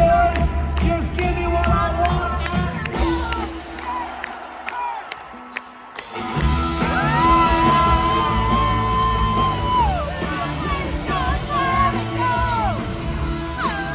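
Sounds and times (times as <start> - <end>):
live rock band playing: 0.0 - 3.8, 5.2 - 13.9
person singing: 6.8 - 13.9.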